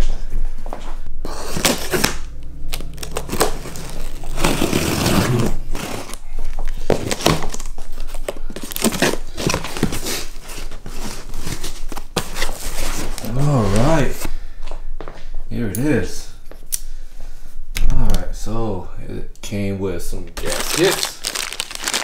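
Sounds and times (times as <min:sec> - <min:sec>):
packing tape tearing: 0:01.5 - 0:13.8, 0:20.4 - 0:22.0
packing material crinkling rustling: 0:01.5 - 0:14.2, 0:20.4 - 0:22.0.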